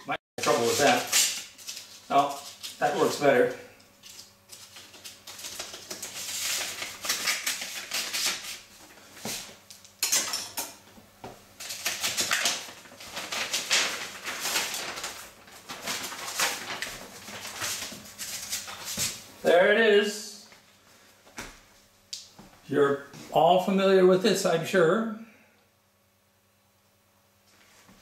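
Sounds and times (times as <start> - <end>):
envelope rustling: 0.4 - 3.4, 4.0 - 9.6, 11.6 - 19.2
knife cutting paper envelope: 0.4 - 9.5, 11.6 - 19.1.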